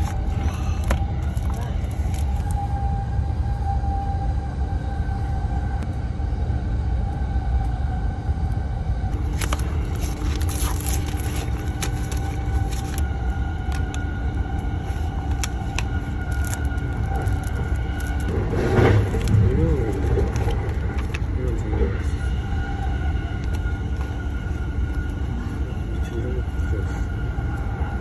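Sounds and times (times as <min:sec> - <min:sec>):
train rumbling inside carriage: 0:00.0 - 0:28.0
cardboard box and paper rustling: 0:09.3 - 0:13.0.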